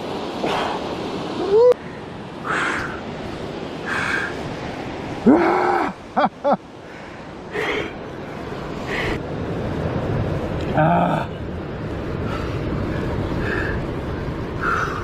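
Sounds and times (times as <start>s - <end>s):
surf on rocks: 0.0s - 15.0s
man groaning: 5.2s - 6.0s, 10.7s - 11.4s
man breathing heavily: 6.8s - 8.0s, 12.1s - 15.0s.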